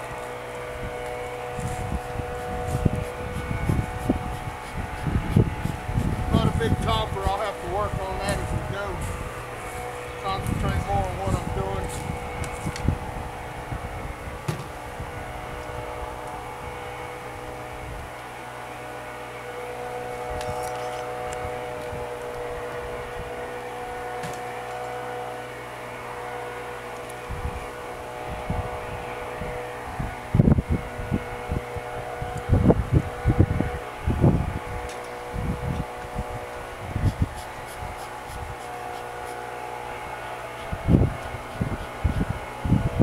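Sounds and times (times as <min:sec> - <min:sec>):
honeybees buzzing: 0:00.0 - 0:43.0
wind on the microphone: 0:00.7 - 0:18.1, 0:27.2 - 0:38.6, 0:40.6 - 0:43.0
knocks on wooden hive: 0:14.4 - 0:14.7.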